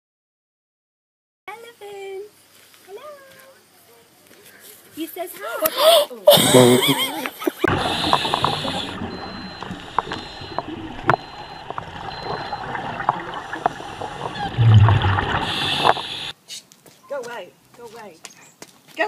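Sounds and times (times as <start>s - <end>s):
diver breathing through regulator: 7.7s - 10.6s, 13.2s - 16.3s
bubbles gurgling: 7.7s - 16.3s.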